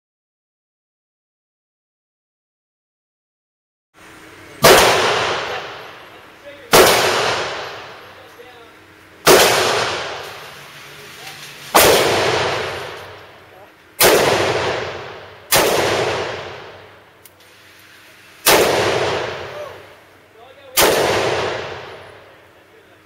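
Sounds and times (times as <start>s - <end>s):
handgun shots echoing: 4.6s - 5.9s, 6.7s - 8.0s, 9.2s - 10.4s, 11.7s - 13.2s, 14.0s - 16.9s, 18.4s - 19.8s, 20.7s - 22.1s.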